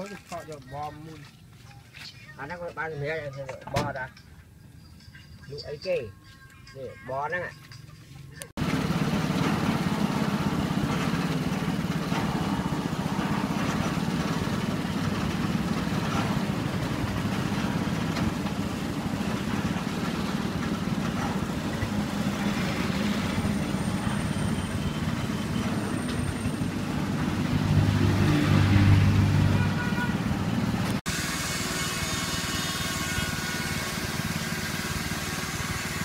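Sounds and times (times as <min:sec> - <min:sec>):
street noise: 0:00.0 - 0:36.0
motor vehicle engine idling: 0:08.3 - 0:28.0.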